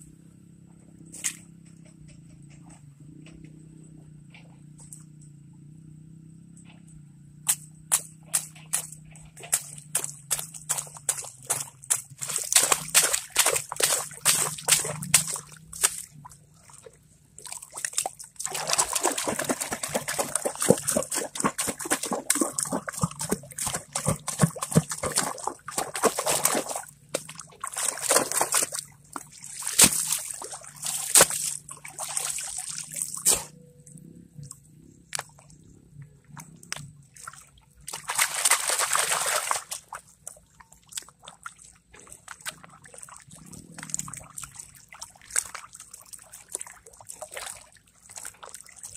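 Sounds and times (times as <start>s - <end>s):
water splashing and sloshing: 0.8s - 5.0s, 7.5s - 48.9s
water lapping in a pan: 8.3s - 33.6s, 35.1s - 48.9s.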